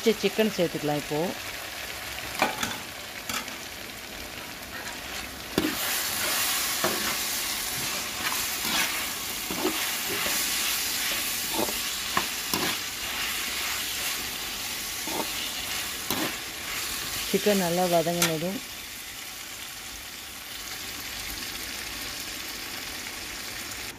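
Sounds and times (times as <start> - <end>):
food sizzling in a pan: 0.0 - 23.9
metal spatula scraping a pan: 4.7 - 17.4.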